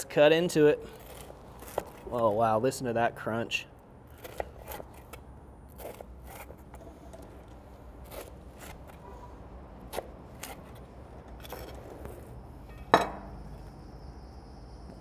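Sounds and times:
knife sawing through crisp crust: 0:08.0 - 0:09.2.

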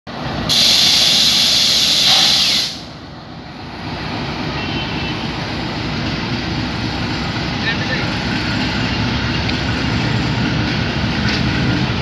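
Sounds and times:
train coaches rumbling: 0:00.1 - 0:12.0
air brakes hissing: 0:00.5 - 0:02.9.

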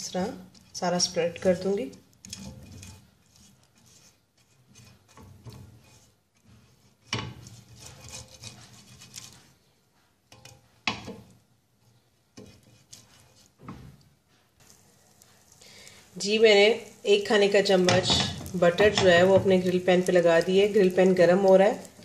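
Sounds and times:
brush scraping grill pan: 0:00.0 - 0:11.3, 0:11.9 - 0:14.0, 0:17.5 - 0:22.0
brush knocking against pan: 0:17.8 - 0:19.9.

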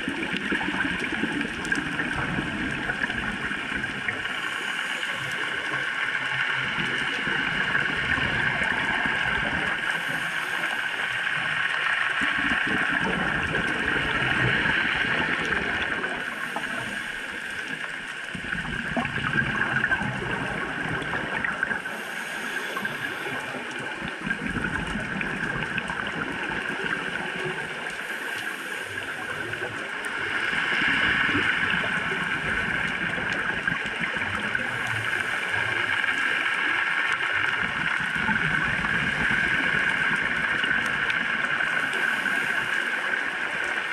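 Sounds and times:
exhaled bubbles underwater: 0:00.0 - 0:43.9
steady hiss: 0:08.6 - 0:12.7, 0:14.6 - 0:18.3, 0:21.4 - 0:24.1, 0:27.3 - 0:31.8, 0:41.7 - 0:43.8
diver breathing through regulator: 0:21.8 - 0:23.6.

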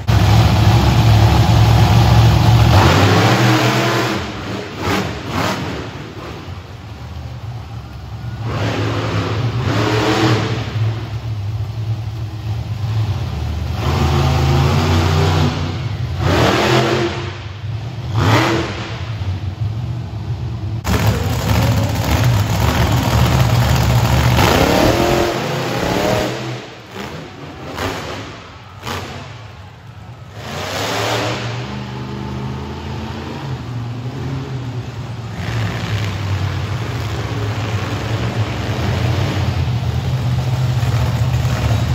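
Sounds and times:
low idling engine rumble: 0:00.0 - 0:02.8, 0:05.8 - 0:08.5, 0:10.7 - 0:16.2, 0:18.9 - 0:25.3, 0:36.3 - 0:41.9
monster truck engines revving: 0:00.0 - 0:41.9.

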